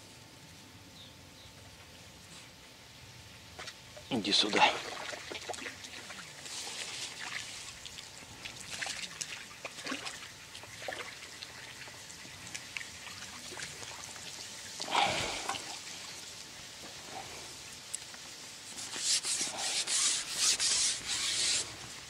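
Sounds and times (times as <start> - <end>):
water splashing: 4.3 - 16.2.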